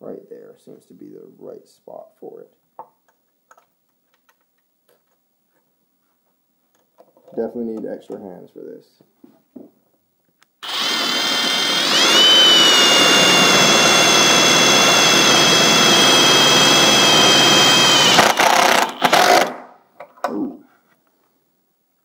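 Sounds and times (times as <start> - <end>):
power driver motor whining: 10.6 - 19.5.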